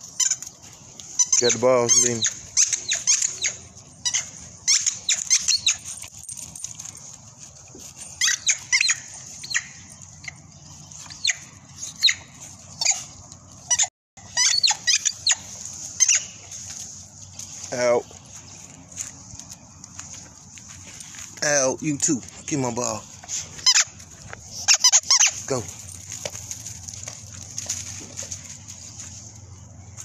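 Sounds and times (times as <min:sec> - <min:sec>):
rubber dog toy squeaking: 0:00.1 - 0:00.4, 0:01.2 - 0:06.0, 0:08.2 - 0:09.8, 0:11.1 - 0:16.4, 0:23.6 - 0:24.0, 0:24.6 - 0:25.6.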